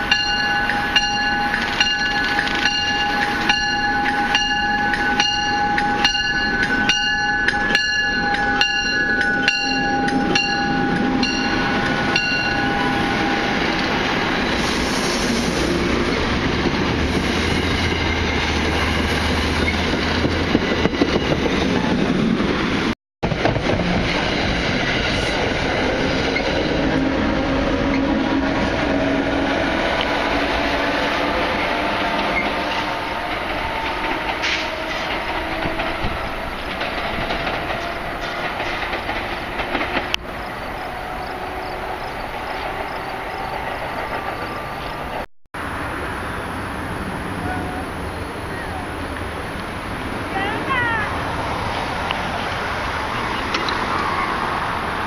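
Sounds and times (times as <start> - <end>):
train bell ringing: 0.0 - 14.6
train wheels clattering and rumbling: 0.0 - 45.3.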